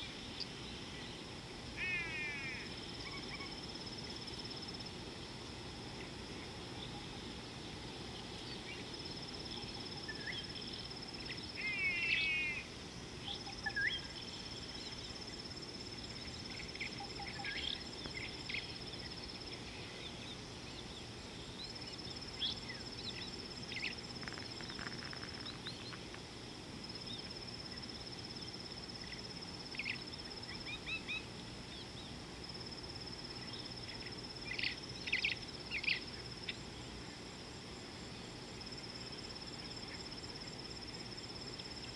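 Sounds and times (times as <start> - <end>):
background hiss: 0.0 - 41.9
insect trill: 0.0 - 41.9
bird chirps: 16.3 - 21.0.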